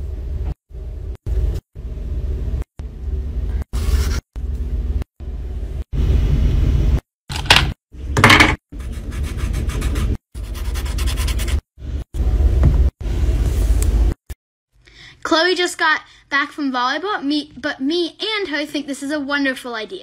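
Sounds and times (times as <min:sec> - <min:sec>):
marker scratching on paper: 0:03.8 - 0:04.2, 0:08.8 - 0:11.6
paper being handled and rubbed: 0:03.8 - 0:04.3, 0:08.8 - 0:11.6.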